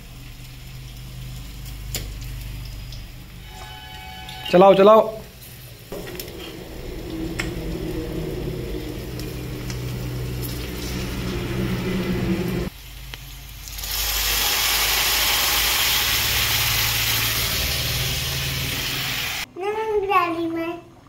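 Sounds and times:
loud sizzle of poured food: 0.0 - 4.6, 7.8 - 19.5
low hum with rattle: 5.4 - 12.7.

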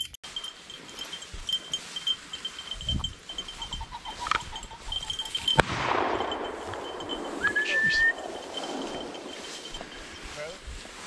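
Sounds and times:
shotgun shot with echo: 5.6 - 7.4.

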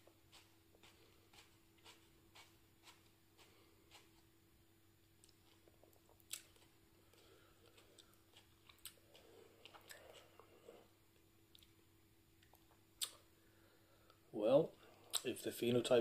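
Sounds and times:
faint hum: 0.0 - 16.0
chewing and wet mouth clicks: 5.2 - 10.5, 12.4 - 13.2, 15.1 - 15.3.

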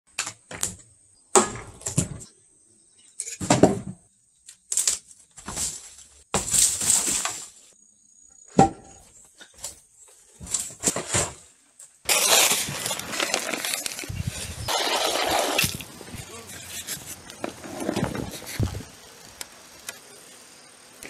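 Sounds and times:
debris falling: 12.0 - 18.9
steady high whine: 14.5 - 21.0.

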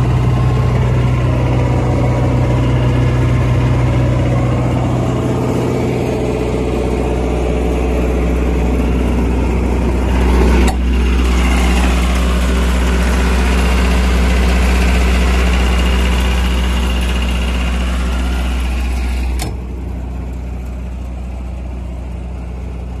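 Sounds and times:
generator diesel engine running: 0.0 - 23.0
door shutting clunk: 19.3 - 19.7.

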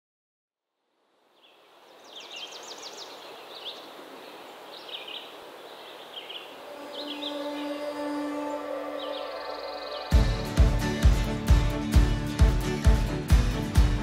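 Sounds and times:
steady background hiss: 0.8 - 10.1
birds chirping: 1.3 - 14.0.

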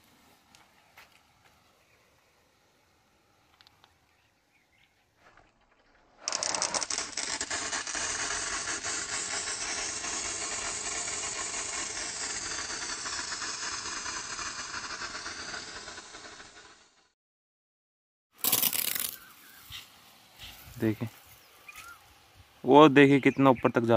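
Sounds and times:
water jet hissing: 6.4 - 16.8.

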